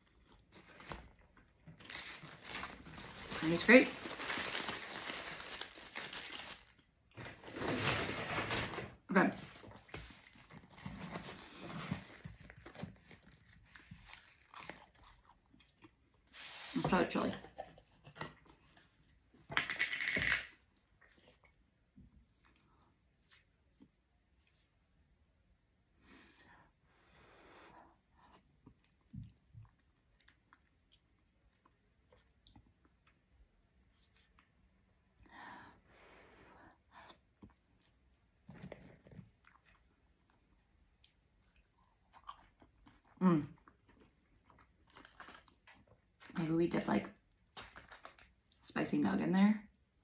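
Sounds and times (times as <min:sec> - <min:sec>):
foil wrapper crinkling: 0:00.5 - 0:15.1, 0:47.5 - 0:48.4
quiet chewing: 0:09.8 - 0:16.5, 0:20.9 - 0:24.7, 0:27.8 - 0:35.3, 0:36.6 - 0:46.3.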